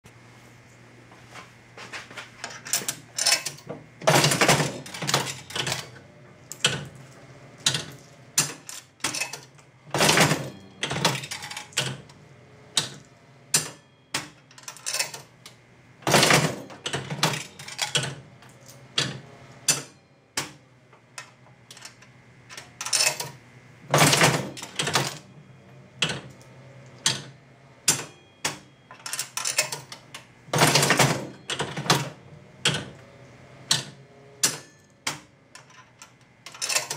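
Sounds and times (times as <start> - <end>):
low steady hum: 0.1 - 36.9
slot machine handle clatter: 2.4 - 7.0, 7.6 - 12.2, 12.8 - 33.0, 33.7 - 36.9
reels clicking and clunking: 33.7 - 36.9.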